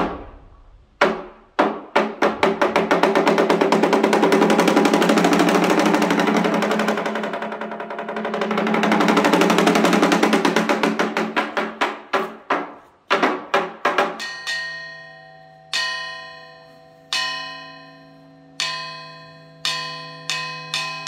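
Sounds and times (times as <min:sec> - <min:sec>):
metal plate gong ringing: 0:14.2 - 0:21.0.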